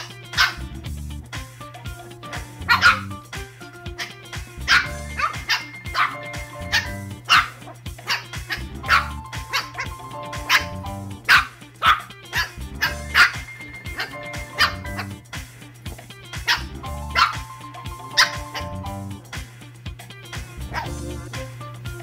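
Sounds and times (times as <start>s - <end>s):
puppies barking and yipping: 0.0s - 0.7s, 2.3s - 3.2s, 3.9s - 15.2s, 16.4s - 19.0s, 20.7s - 21.3s
background music: 0.0s - 22.0s.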